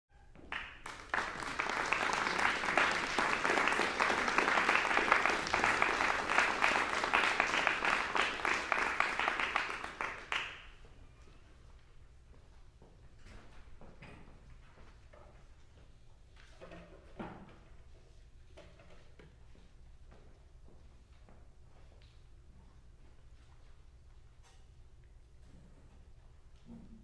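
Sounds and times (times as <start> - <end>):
audience applauding: 0.4 - 10.8.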